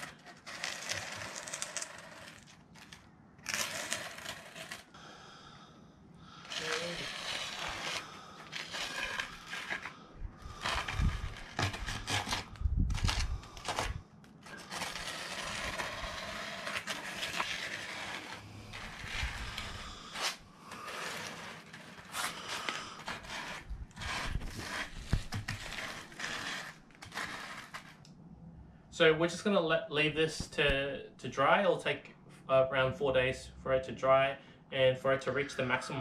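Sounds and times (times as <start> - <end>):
wood scraping wet concrete: 0.0 - 4.9, 6.4 - 28.1.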